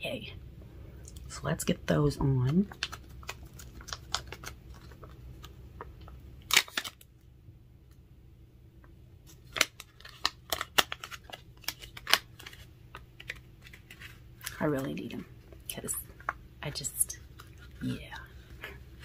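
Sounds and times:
foil packet crinkling: 2.5 - 7.2, 9.3 - 14.6.

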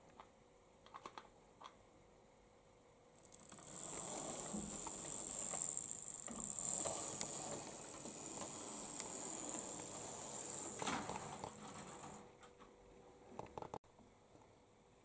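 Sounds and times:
high-pitched motor whine: 3.4 - 10.8.

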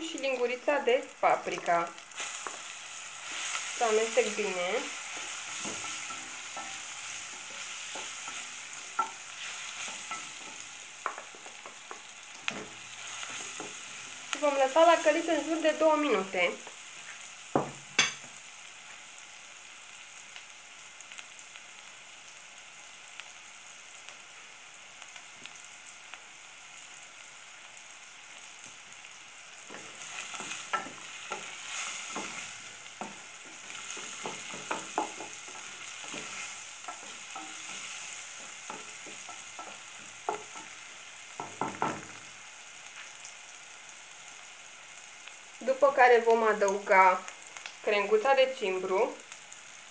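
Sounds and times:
onion sizzling in oil: 0.0 - 49.9
spoon knocking on pot: 33.9 - 36.3, 41.4 - 42.2.

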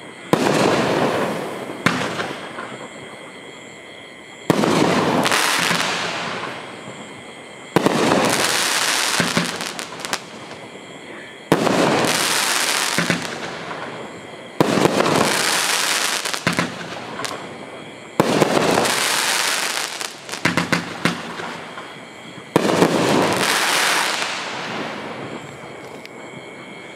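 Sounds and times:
fireworks bangs: 0.3 - 2.9, 4.5 - 10.7, 11.4 - 25.8.

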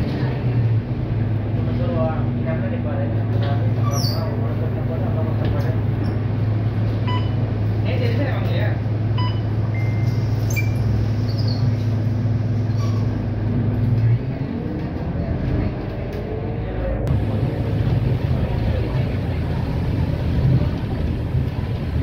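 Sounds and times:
bus engine and road noise: 0.0 - 22.0
bus idling hum: 0.0 - 22.0.

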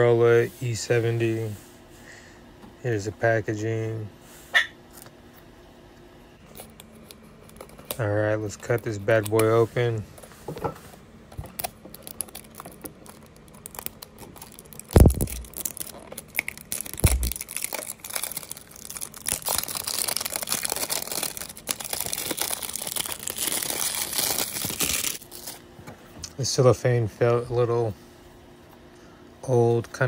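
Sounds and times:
cellophane crinkling and tearing: 11.4 - 25.7.

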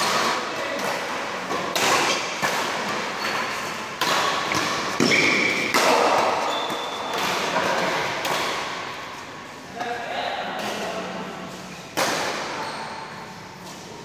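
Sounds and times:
racket hitting shuttlecock: 0.0 - 9.0, 11.9 - 12.6.

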